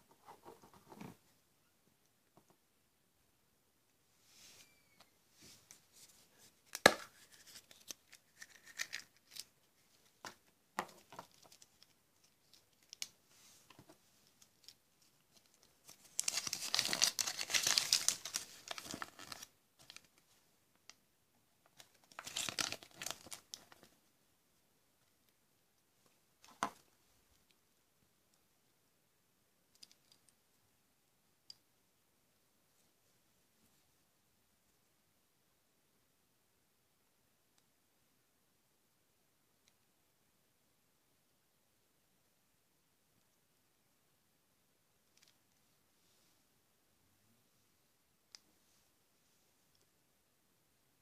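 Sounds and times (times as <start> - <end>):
wrapper tearing and crinkling: 16.1 - 20.0, 22.1 - 23.5.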